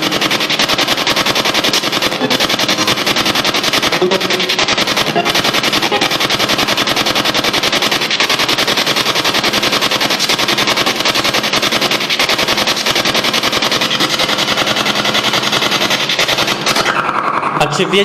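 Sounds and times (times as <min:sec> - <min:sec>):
pulsing radio static: 0:01.9 - 0:08.2.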